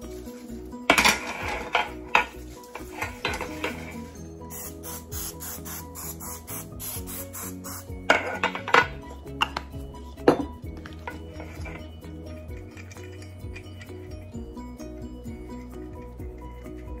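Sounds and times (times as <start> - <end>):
soft background music: 0.0 - 17.0
metal pans clattering: 0.9 - 4.0, 8.1 - 9.6
cooking spray hiss: 4.5 - 7.9.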